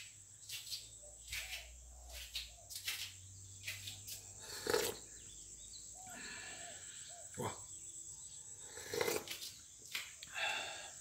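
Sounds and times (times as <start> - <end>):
person sipping from mug: 4.4 - 5.0, 8.7 - 9.4.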